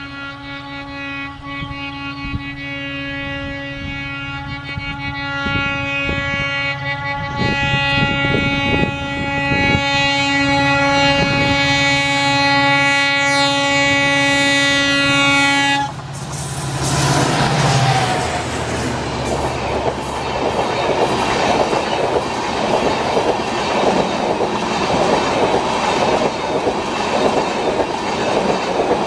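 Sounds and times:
train horn blast: 0.0s - 21.8s
rush of passing train: 0.0s - 29.0s
train thuds and rumble: 13.6s - 29.0s.

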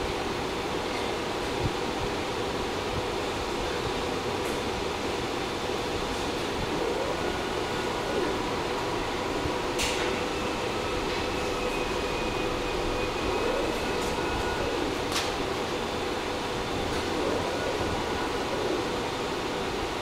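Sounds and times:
fan-like whirring: 0.0s - 20.0s
faint whines: 6.1s - 20.0s.

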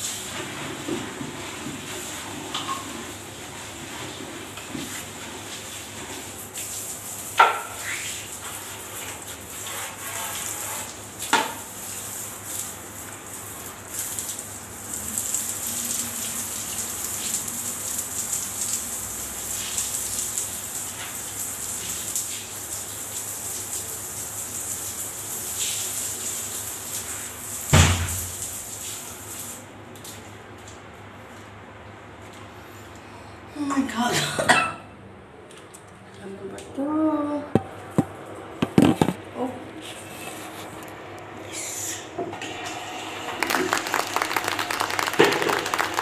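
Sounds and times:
water spraying from hose: 0.0s - 30.2s.

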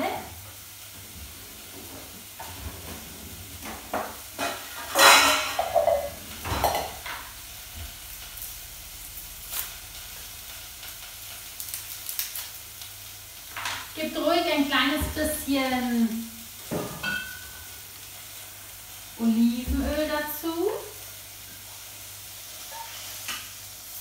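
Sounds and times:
vegetables sizzling in a pot: 0.0s - 24.0s
metal bowl knocking on counter: 5.0s - 7.0s
onion skin peeling rustles: 9.4s - 13.1s.

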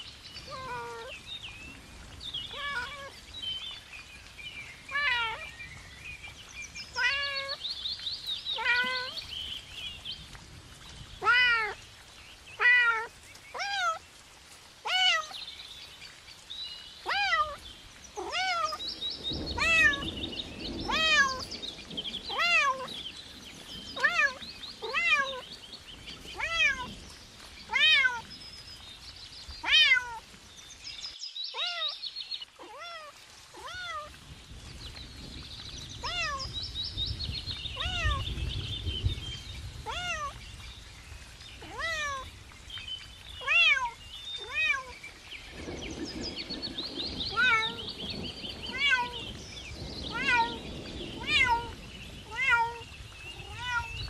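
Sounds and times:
kitten meowing: 18.2s - 18.8s, 39.9s - 40.3s, 41.6s - 42.2s, 53.4s - 54.0s.

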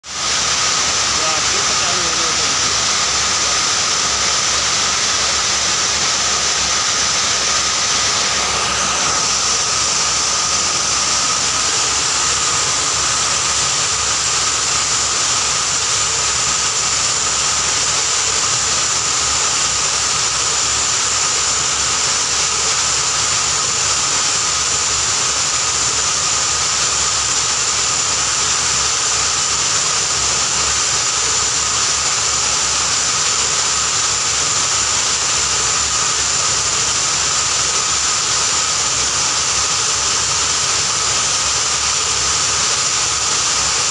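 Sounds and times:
high whine: 0.0s - 23.8s
grinding machine rushing: 0.0s - 24.4s.

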